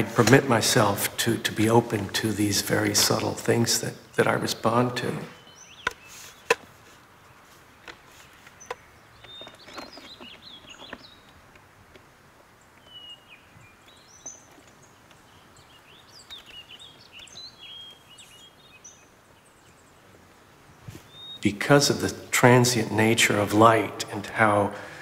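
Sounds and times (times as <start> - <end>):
small birds chirping: 0.0 - 25.0.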